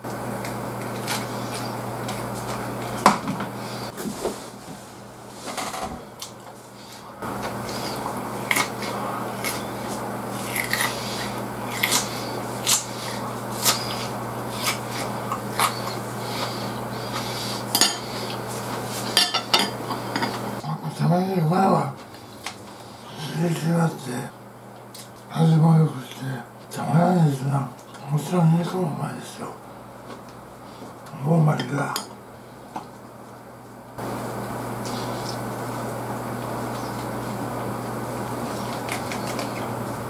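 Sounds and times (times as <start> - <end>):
person chewing: 6.9 - 19.2, 38.4 - 39.8.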